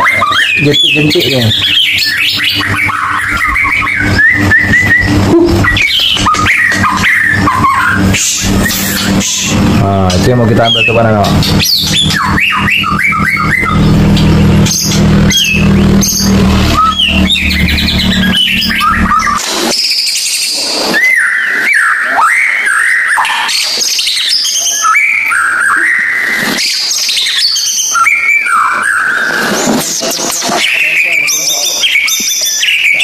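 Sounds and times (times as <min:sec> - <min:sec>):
bird singing whistled phrases: 0:00.0 - 0:13.9, 0:14.7 - 0:33.0
steady low hum: 0:00.6 - 0:19.7.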